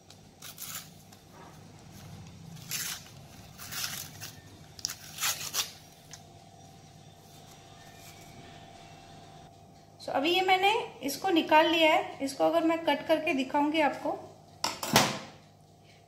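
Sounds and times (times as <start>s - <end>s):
paper crinkling and tearing: 0.1s - 6.2s.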